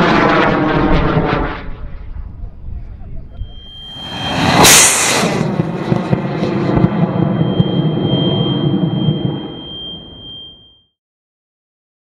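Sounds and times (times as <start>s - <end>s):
rocket exhaust rushing: 3.4s - 10.4s
rocket ignition blast: 3.4s - 10.6s.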